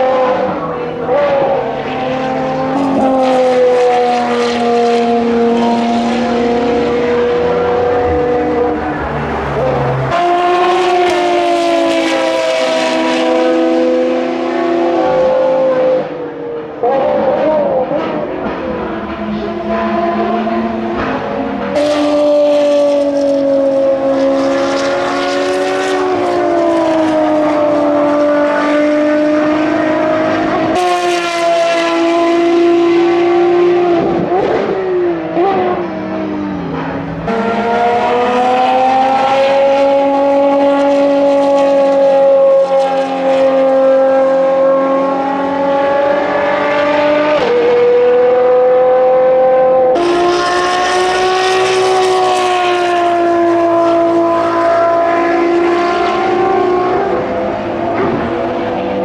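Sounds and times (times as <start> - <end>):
race car engine wailing: 0.0 - 59.0.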